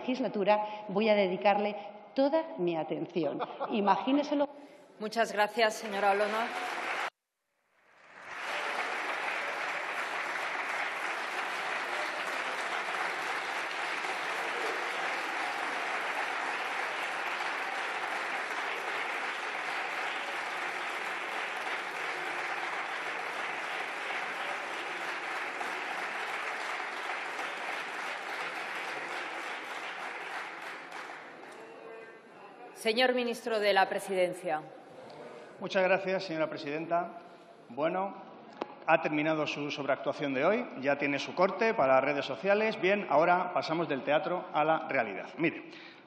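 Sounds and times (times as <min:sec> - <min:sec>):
crowd applauding: 0:05.8 - 0:07.1, 0:07.8 - 0:32.1.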